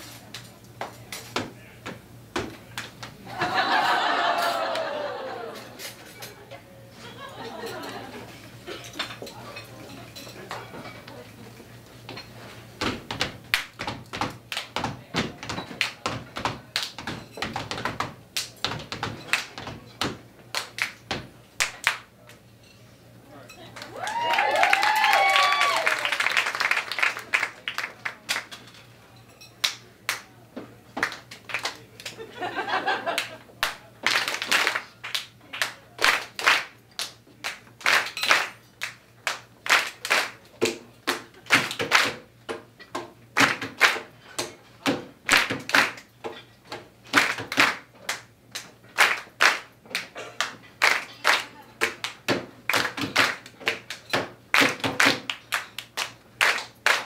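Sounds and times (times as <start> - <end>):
hand claps and slaps: 2.4 - 3.2, 12.8 - 22.1, 23.8 - 28.6, 29.6 - 30.3, 31.0 - 32.2, 33.1 - 42.6, 43.4 - 46.1, 47.1 - 57.0.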